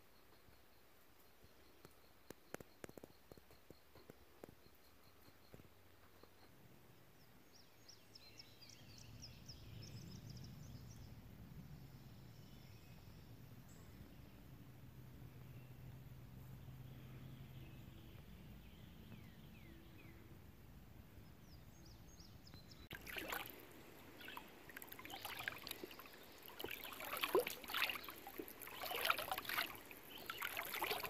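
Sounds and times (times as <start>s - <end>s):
faint chirps: 22.5s - 31.0s
pool water sloshing and splashing: 22.9s - 31.0s.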